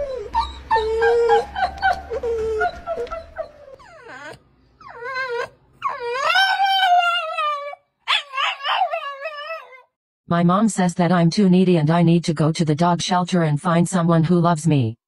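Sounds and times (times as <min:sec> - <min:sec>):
dog howling whines: 0:00.0 - 0:09.9
dog yelping: 0:00.0 - 0:09.9
dogs whining: 0:00.0 - 0:10.0.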